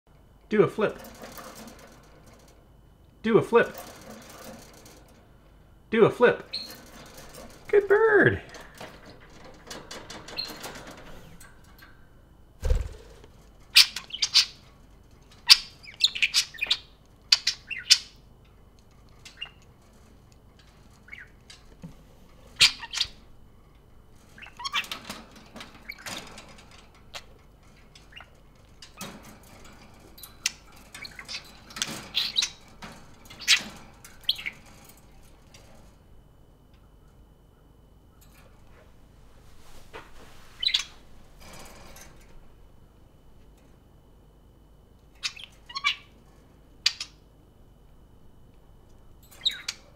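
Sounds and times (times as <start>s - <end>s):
budgerigars chirping and squawking: 13.8s - 14.6s, 15.4s - 18.2s, 21.0s - 21.4s, 22.6s - 23.2s, 24.3s - 25.0s, 30.5s - 34.8s, 40.6s - 40.9s, 45.2s - 46.2s, 49.4s - 49.9s.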